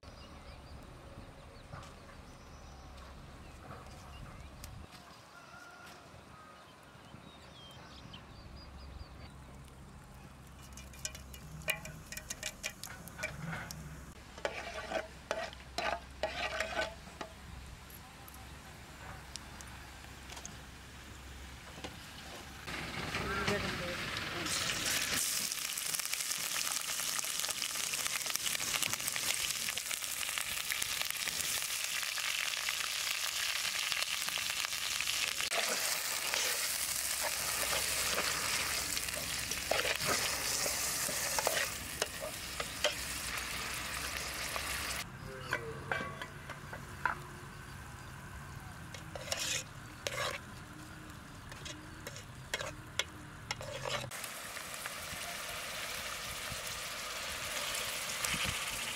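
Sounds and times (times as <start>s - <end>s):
onion sizzling in hot oil: 10.5s - 13.3s, 14.0s - 17.4s, 23.9s - 45.1s, 48.9s - 58.9s
spatula scraping in pot: 10.6s - 17.4s, 35.5s - 43.4s, 48.9s - 50.5s, 51.5s - 54.2s.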